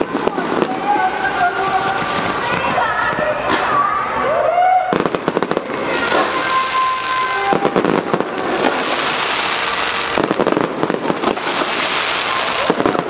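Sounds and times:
firework crackling: 0.0 - 13.0
firework shells bursting: 7.5 - 13.0.

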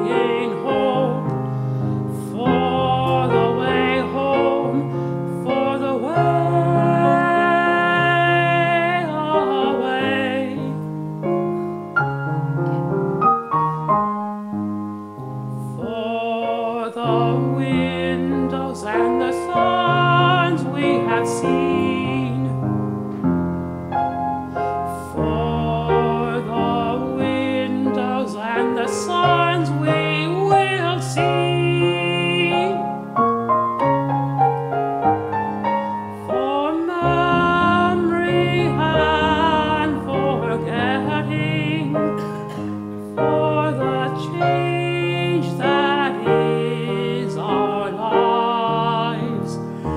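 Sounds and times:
man singing: 0.0 - 1.4, 2.1 - 10.8, 15.7 - 22.6, 24.9 - 33.0, 36.2 - 49.9
grand piano: 0.0 - 49.9.

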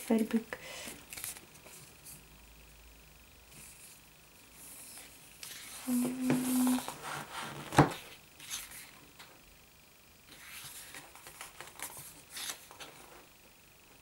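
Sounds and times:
paper and card rustling: 0.8 - 2.2, 4.8 - 9.0, 10.3 - 13.3
pages turning: 0.9 - 1.9, 4.9 - 8.9, 10.3 - 13.2.

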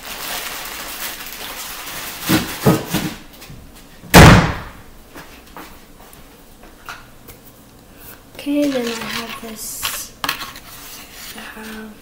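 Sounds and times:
door slamming shut: 4.1 - 4.8.

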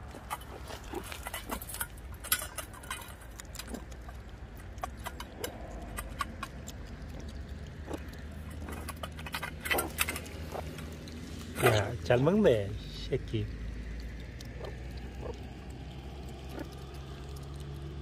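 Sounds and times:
claws scraping metal bowl: 0.0 - 12.3.

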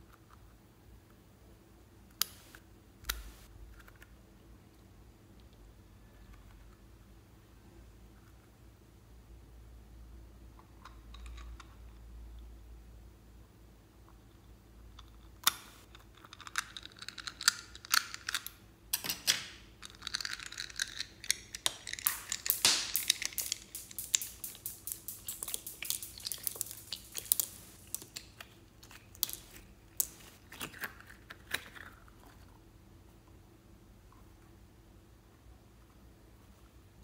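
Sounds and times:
rubber toy crackling and clicking: 19.9 - 32.0.

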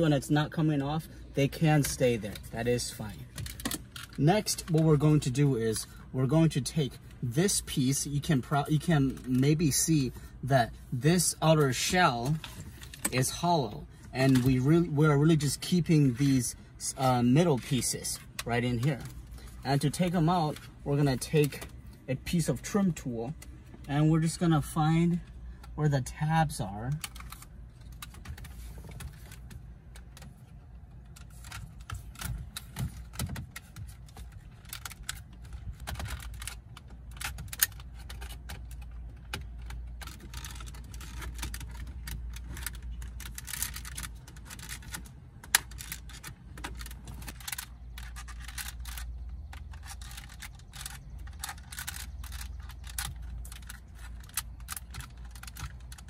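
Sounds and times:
low steady hum: 0.0 - 56.0
plastic clicks and scrapes: 26.9 - 56.0.

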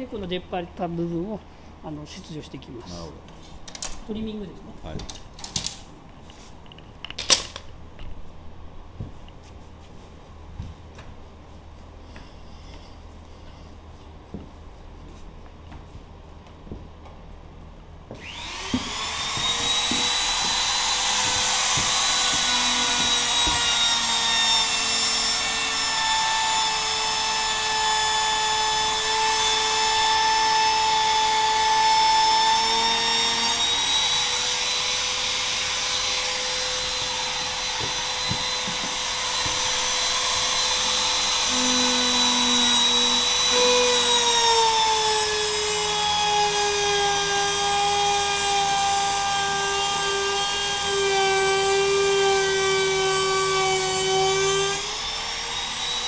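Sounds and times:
router motor whining: 18.2 - 56.0.

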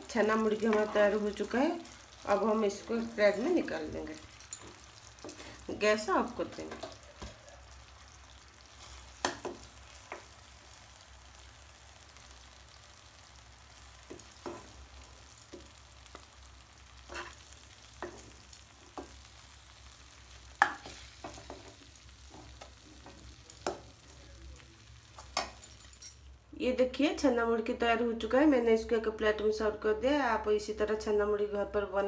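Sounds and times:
syrup bubbling in a pan: 4.6 - 5.8, 6.8 - 25.6.

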